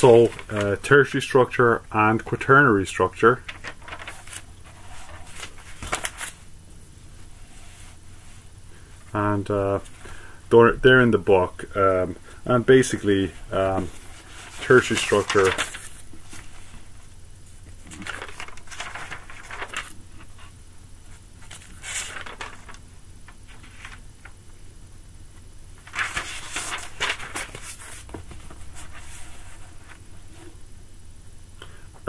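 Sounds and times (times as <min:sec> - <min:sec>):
rustling and scraping handling noises: 0:00.0 - 0:00.9, 0:03.4 - 0:06.4, 0:12.8 - 0:24.0, 0:25.8 - 0:30.6
faint low hum: 0:00.0 - 0:32.0.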